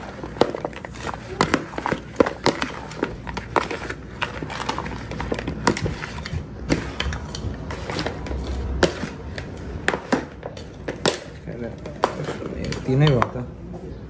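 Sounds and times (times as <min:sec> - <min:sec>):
plastic utensil scraping plastic bowl: 0:00.0 - 0:11.0.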